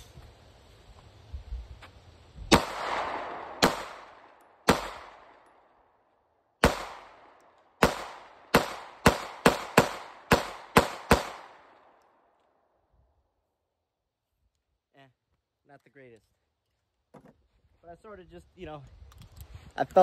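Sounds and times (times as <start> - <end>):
pistol shots with echo: 2.5 - 5.6, 6.6 - 12.0.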